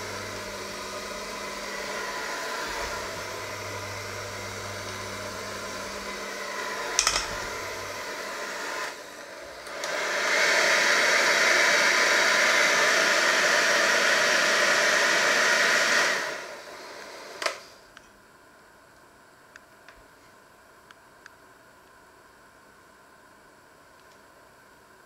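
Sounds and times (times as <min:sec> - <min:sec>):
electric hand mixer running: 0:00.0 - 0:17.4
sharp mixer click: 0:06.9 - 0:07.6.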